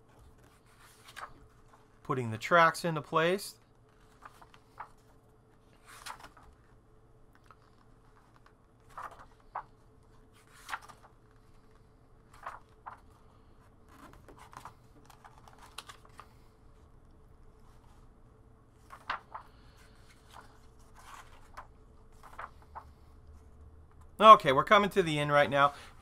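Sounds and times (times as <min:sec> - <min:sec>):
paper pages turning: 0:00.1 - 0:02.0, 0:03.9 - 0:06.7, 0:07.3 - 0:16.5, 0:18.7 - 0:23.1.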